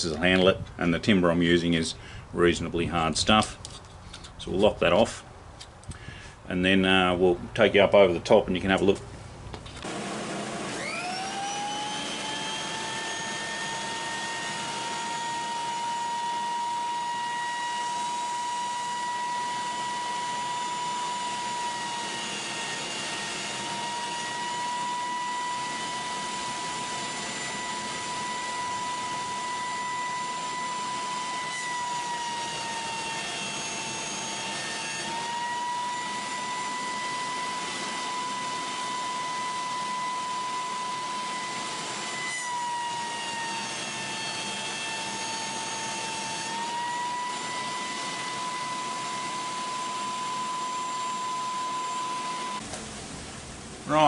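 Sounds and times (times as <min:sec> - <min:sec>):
jointer motor whining: 0:09.7 - 0:52.6.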